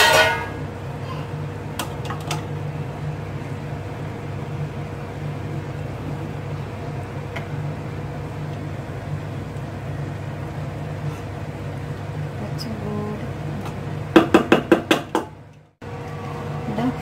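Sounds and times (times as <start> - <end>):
spatula tapping metal pot: 0.0 - 0.6
low hum with faint tone: 0.0 - 14.2.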